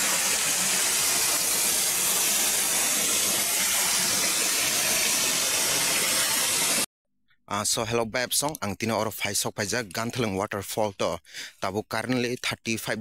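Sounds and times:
waterfall splashing onto rocks: 0:00.0 - 0:06.9.

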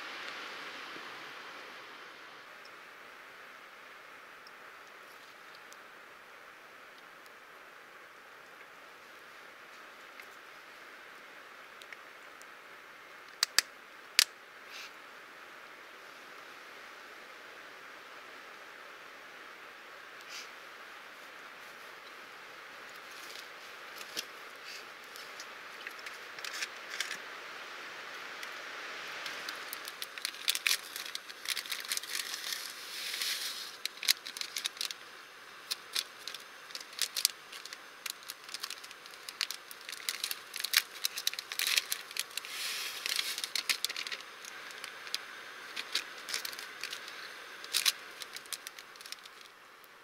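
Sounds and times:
gas stove hissing: 0:20.2 - 0:20.6, 0:28.2 - 0:50.0
paper sachets tearing and crackling: 0:29.3 - 0:35.0, 0:35.6 - 0:49.5.

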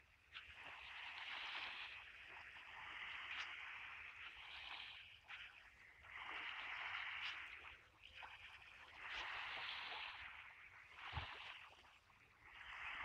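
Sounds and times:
small waves lapping on shore: 0:00.2 - 0:13.0.

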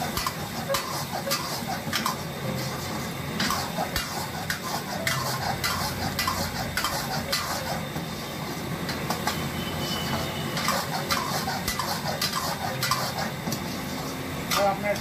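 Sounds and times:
gravy sizzling: 0:00.0 - 0:15.0
metal spoon scraping frying pan: 0:03.4 - 0:07.8, 0:09.2 - 0:13.4.

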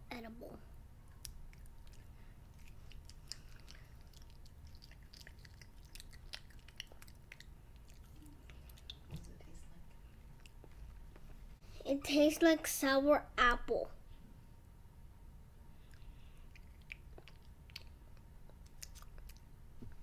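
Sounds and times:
child chewing candy: 0:01.1 - 0:09.1, 0:10.1 - 0:11.2, 0:15.8 - 0:19.5
wet mouth clicks: 0:01.2 - 0:09.1, 0:15.9 - 0:19.4.

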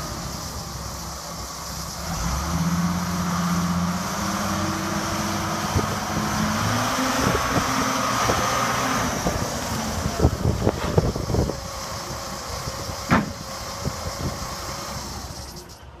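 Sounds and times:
diesel engine running: 0:00.0 - 0:16.0
sharp knocks: 0:13.1 - 0:13.4.

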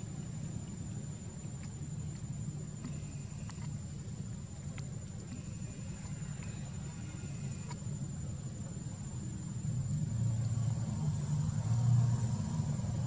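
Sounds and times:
faint ticks: 0:00.0 - 0:10.7
high-pitched insect drone: 0:05.3 - 0:08.3.

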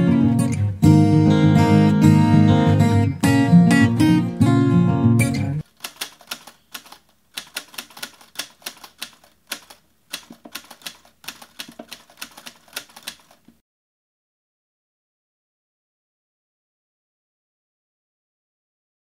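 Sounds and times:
typewriter key clicks: 0:05.8 - 0:13.5.

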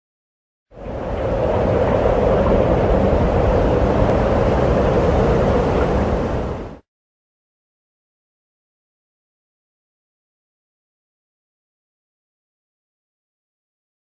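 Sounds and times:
steady rumbling rush: 0:00.8 - 0:06.8.

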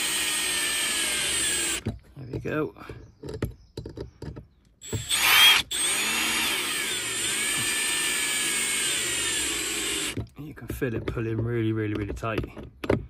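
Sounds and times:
cordless drill motor whirring: 0:00.0 - 0:01.9, 0:04.8 - 0:10.2.

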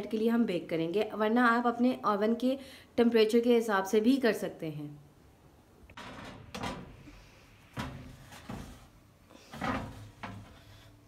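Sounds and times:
metal tray scraping on oven rack: 0:07.8 - 0:11.0.

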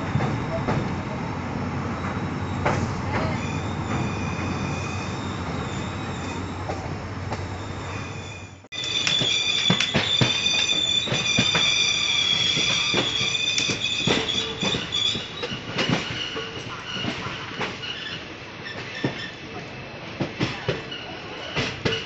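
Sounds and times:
rail joint clicks: 0:00.0 - 0:07.8, 0:08.8 - 0:19.3
train rumbling on rails: 0:00.0 - 0:22.0
wheel squeal: 0:02.0 - 0:06.8, 0:07.4 - 0:19.4.

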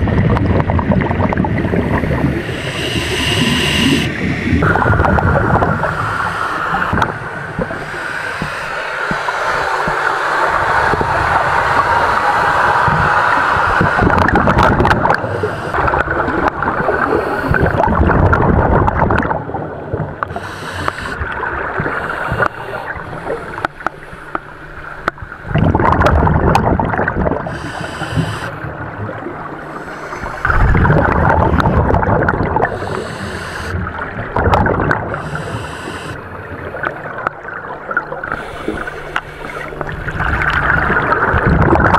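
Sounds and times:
gurgling exhaled bubbles: 0:00.0 - 0:41.9
regulator hiss on inhalation: 0:02.4 - 0:10.4, 0:15.1 - 0:15.8, 0:20.3 - 0:21.2, 0:21.8 - 0:23.8, 0:27.5 - 0:28.6, 0:29.7 - 0:30.7, 0:32.6 - 0:33.8, 0:35.1 - 0:36.2, 0:38.3 - 0:39.8.

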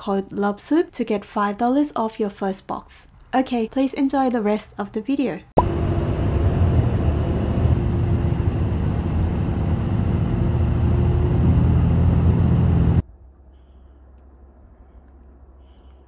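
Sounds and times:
bus engine and road noise: 0:05.6 - 0:13.0
faint hum: 0:05.6 - 0:16.0.

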